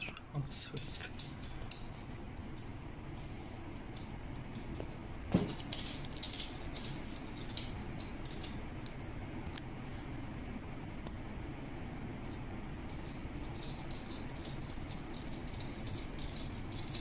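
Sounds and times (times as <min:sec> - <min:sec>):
dog claws ticking on wooden floor: 0:00.7 - 0:08.6, 0:12.9 - 0:17.0.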